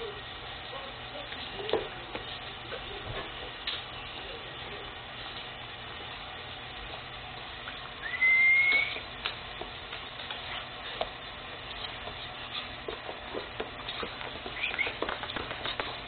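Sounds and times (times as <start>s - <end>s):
dog claws clicking on wood floor: 9.2s - 16.0s.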